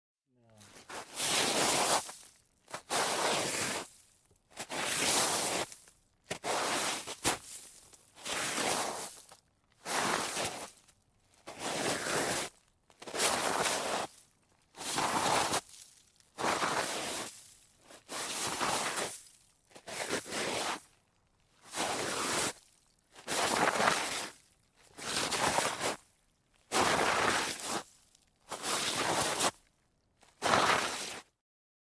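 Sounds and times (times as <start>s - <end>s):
hissing scrapes sliding on snow: 0.7s - 3.9s, 4.6s - 10.7s, 11.5s - 14.1s, 14.8s - 15.7s, 16.4s - 17.4s, 18.0s - 19.2s, 19.8s - 20.9s, 21.7s - 22.6s, 23.2s - 24.4s, 25.0s - 26.0s, 26.7s - 27.9s, 28.5s - 29.6s, 30.3s - 31.3s.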